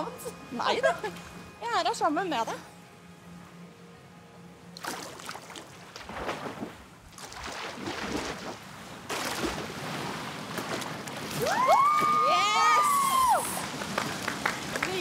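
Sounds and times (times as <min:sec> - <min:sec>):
pool water splashing: 0:04.6 - 0:15.0.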